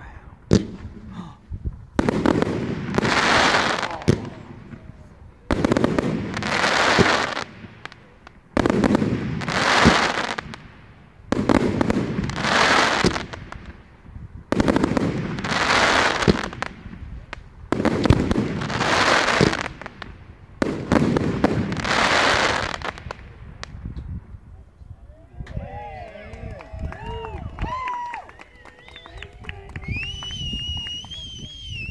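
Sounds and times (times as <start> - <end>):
fireworks bursting and crackling: 0.0 - 24.4, 27.0 - 31.9.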